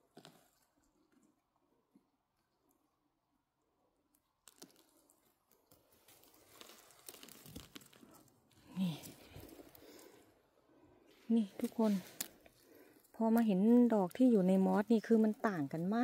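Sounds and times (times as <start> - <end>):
rustling in forest litter: 4.4 - 16.0.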